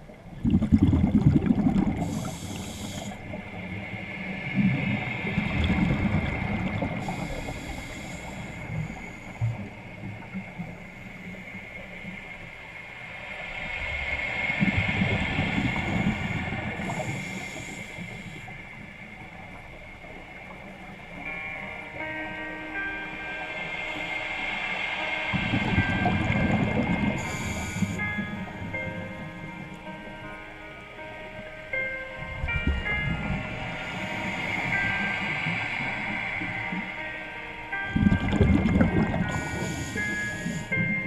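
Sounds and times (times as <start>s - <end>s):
exhaled bubbles rumbling: 0.0s - 2.2s, 38.0s - 39.4s
steady high tone: 1.4s - 41.0s
regulator inhale hiss: 1.8s - 19.6s, 22.8s - 29.5s, 32.8s - 37.9s, 39.2s - 41.0s.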